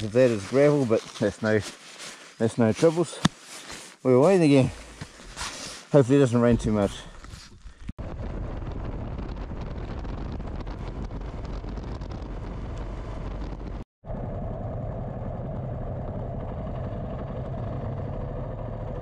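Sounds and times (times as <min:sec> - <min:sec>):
wind and road noise: 0:06.4 - 0:19.0
motorcycle engine running: 0:10.6 - 0:19.0.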